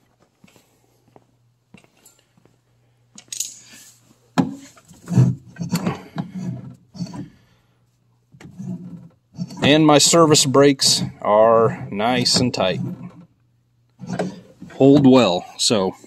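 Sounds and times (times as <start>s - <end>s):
clinks clunks and thumps: 8.4s - 13.4s, 14.0s - 15.4s.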